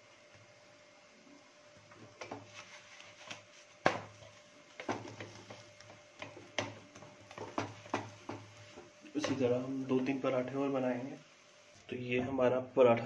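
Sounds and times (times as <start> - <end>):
spatula scraping a pan: 2.2 - 9.5.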